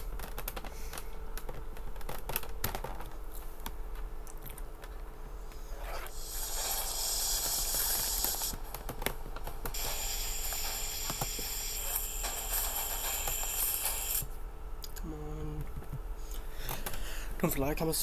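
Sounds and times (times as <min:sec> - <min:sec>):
crackles and clicks: 0:00.0 - 0:15.1
steady high hiss: 0:05.8 - 0:08.9, 0:09.6 - 0:14.4.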